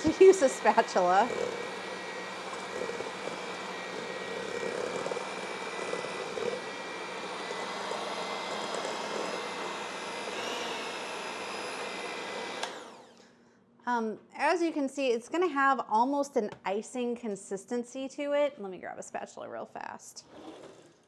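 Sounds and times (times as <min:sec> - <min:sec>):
electric hand mixer whining: 0:00.0 - 0:13.2.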